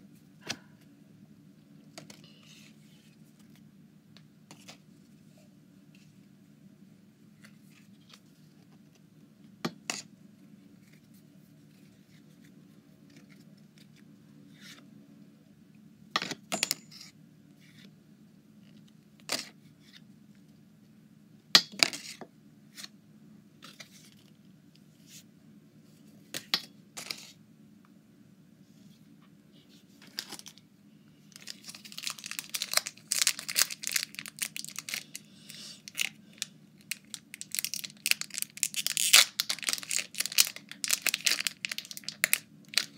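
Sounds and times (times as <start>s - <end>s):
foil wrapper crinkling and tearing: 31.3s - 35.2s, 35.8s - 42.9s.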